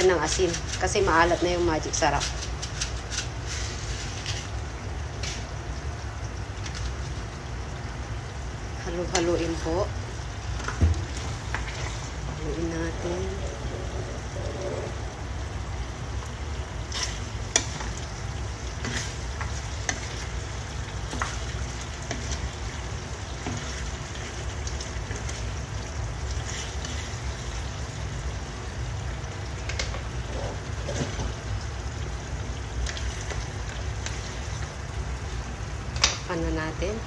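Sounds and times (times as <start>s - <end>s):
food sizzling in a frying pan: 0.0s - 37.0s
spatula scraping pan: 13.0s - 15.0s, 16.8s - 20.4s, 26.3s - 27.7s.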